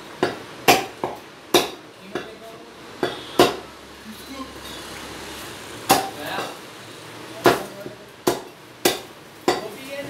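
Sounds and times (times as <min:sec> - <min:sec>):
cleaver chopping on wooden block: 0:00.2 - 0:02.3, 0:03.0 - 0:03.6, 0:05.9 - 0:06.2, 0:07.4 - 0:09.7.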